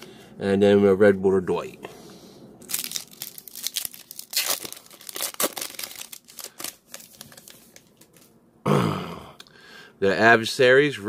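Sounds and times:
foil wrapper crinkling: 0:02.6 - 0:08.3.

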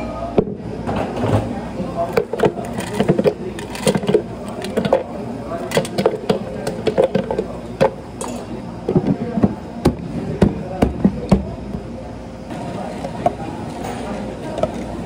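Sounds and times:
hard objects knocking and clattering: 0:02.1 - 0:11.6.

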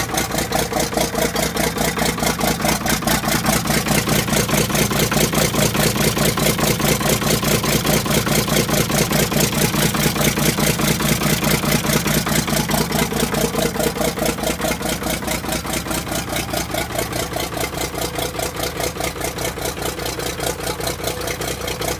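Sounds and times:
diesel tractor engine idling: 0:00.0 - 0:21.9.

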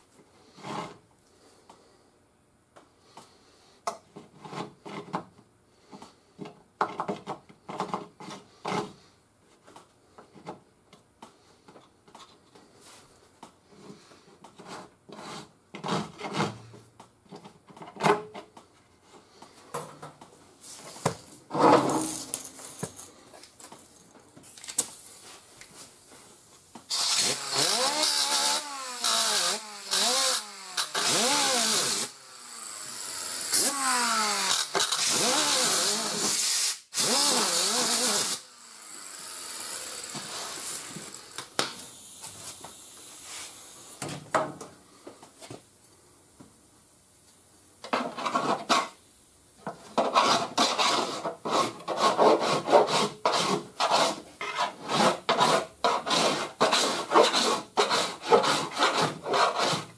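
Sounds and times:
air disc sander grinding: 0:21.5 - 0:23.1, 0:26.9 - 0:44.0
file scraping filler: 0:50.0 - 0:59.9.

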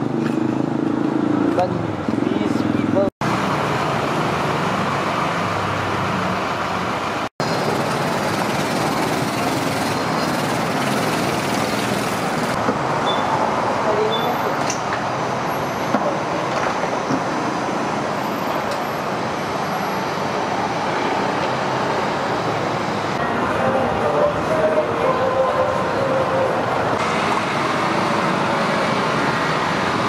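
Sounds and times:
motor scooters and cars passing: 0:00.0 - 0:30.0.

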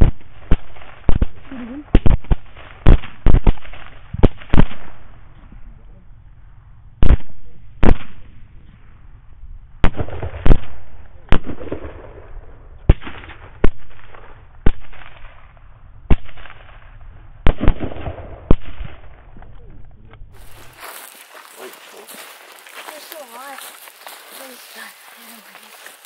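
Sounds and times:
rifle shots: 0:00.0 - 0:05.2, 0:07.0 - 0:08.3, 0:09.8 - 0:15.5, 0:16.1 - 0:19.3.

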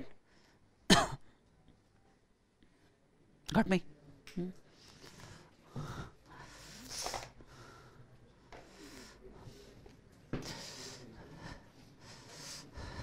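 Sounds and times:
noisy breath: 0:00.0 - 0:00.8, 0:04.7 - 0:13.0.

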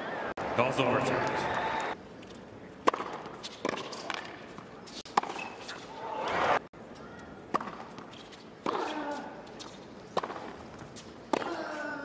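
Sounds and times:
tennis racket hitting ball: 0:02.8 - 0:05.8, 0:07.5 - 0:11.9.

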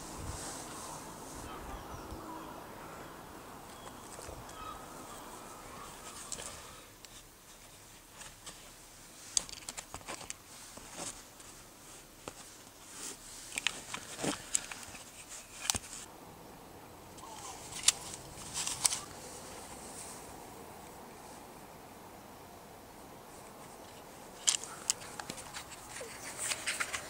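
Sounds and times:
handling clicks and rustles: 0:03.6 - 0:16.1, 0:17.1 - 0:21.4, 0:23.3 - 0:27.0.

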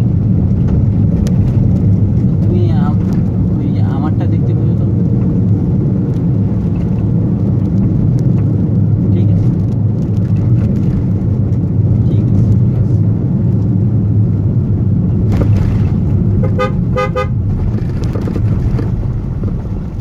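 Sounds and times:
car engine and tyre rumble: 0:00.0 - 0:20.0
vehicle horn beeps: 0:16.4 - 0:17.4.

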